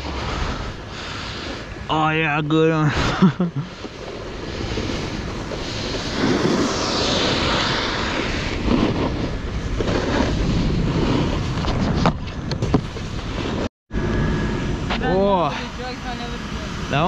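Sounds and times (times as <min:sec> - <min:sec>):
snowboard scraping on snow: 0:00.0 - 0:01.8, 0:02.8 - 0:13.7
wind on microphone: 0:00.0 - 0:17.0.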